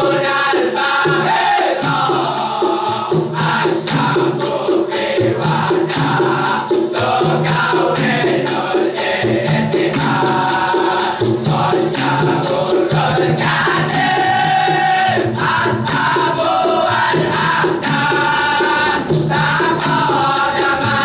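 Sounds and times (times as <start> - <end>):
boys chanting a song in unison: 0.0 - 21.0
steady beat: 0.0 - 21.0.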